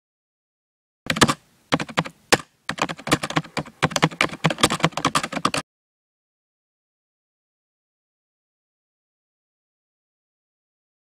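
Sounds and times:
keyboard typing clicks: 1.1s - 5.6s.

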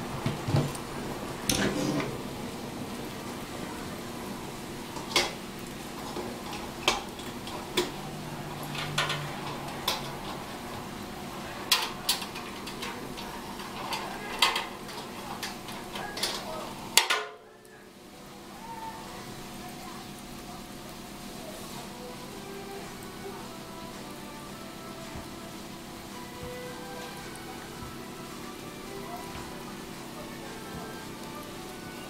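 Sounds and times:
metal grill parts clinking: 8.6s - 10.4s, 11.7s - 17.4s.

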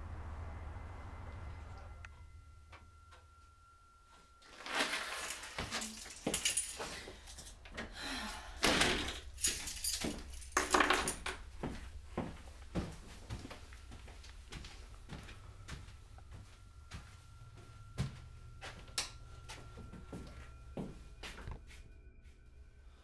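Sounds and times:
keys jangling: 4.6s - 7.6s, 8.8s - 11.5s.

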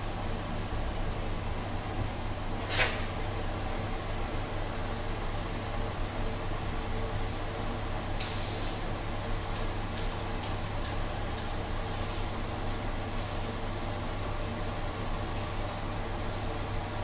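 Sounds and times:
hiss bursts: 8.2s - 8.8s.

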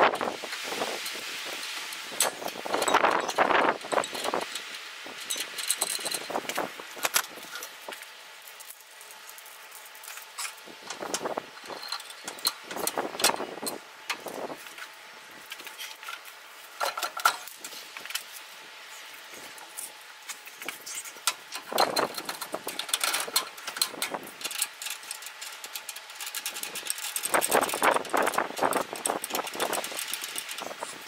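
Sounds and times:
metal clinks and knocks: 2.2s - 7.7s.

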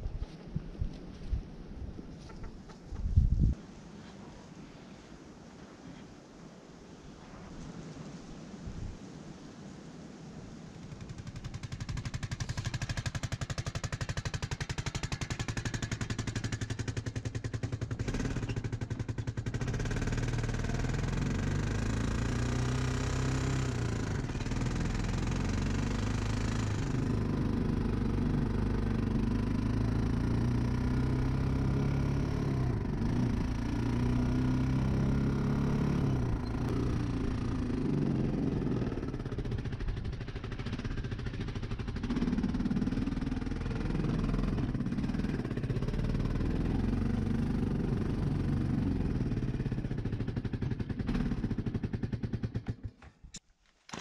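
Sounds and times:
atv engine running: 10.8s - 53.1s.

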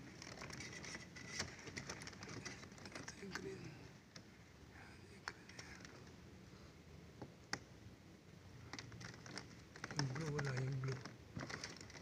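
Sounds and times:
clicks and taps of plastic connectors: 8.7s - 12.0s.

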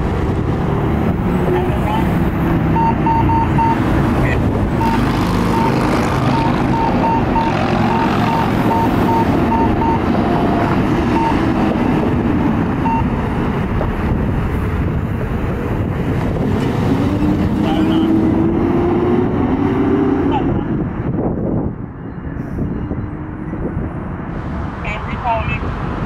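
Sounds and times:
diesel engine running: 0.0s - 18.5s
back-up alarm beeping: 2.8s - 3.8s, 4.8s - 10.1s, 11.1s - 11.4s, 12.8s - 13.2s.

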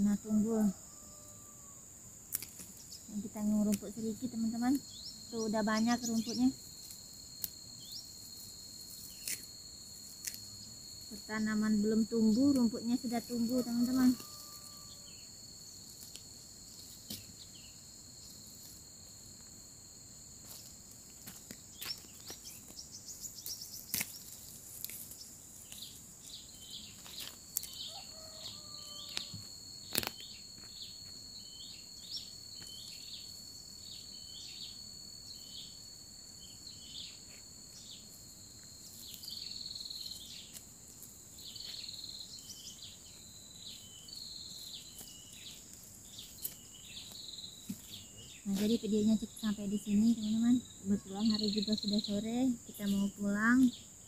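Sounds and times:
high-pitched insect drone: 0.0s - 54.0s
clicks and rustles of weeding: 2.3s - 3.0s, 8.8s - 10.5s, 20.4s - 26.0s, 26.9s - 30.3s, 44.5s - 48.8s.

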